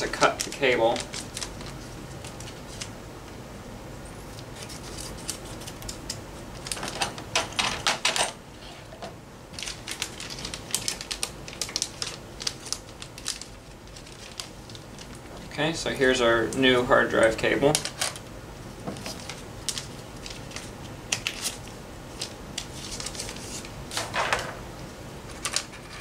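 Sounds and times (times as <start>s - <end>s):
plastic packaging crackling: 0.0s - 3.0s, 9.5s - 18.3s, 18.9s - 24.2s.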